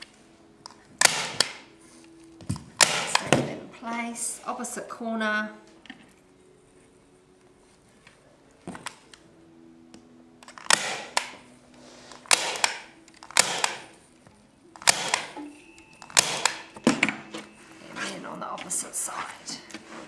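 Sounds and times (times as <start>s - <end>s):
staple gun snaps: 1.0s - 1.6s, 10.4s - 11.4s, 12.2s - 13.9s, 14.8s - 15.4s, 16.0s - 17.1s.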